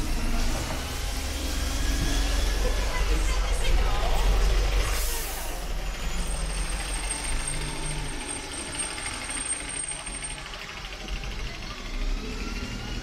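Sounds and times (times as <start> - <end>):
heavy vehicle engine rumble: 0.0 - 13.0
street traffic: 0.0 - 13.0.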